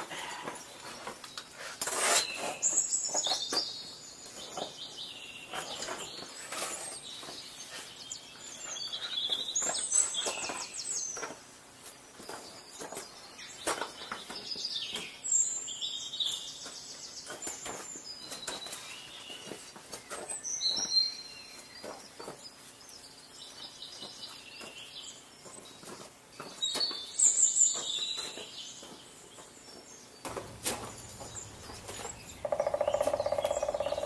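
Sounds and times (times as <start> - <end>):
songbird trilling: 30.3 - 34.0.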